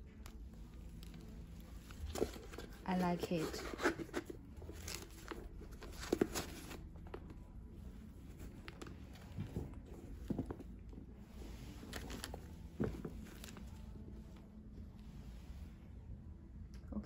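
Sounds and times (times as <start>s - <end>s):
sneakers handled on cloth table: 11.8s - 13.8s.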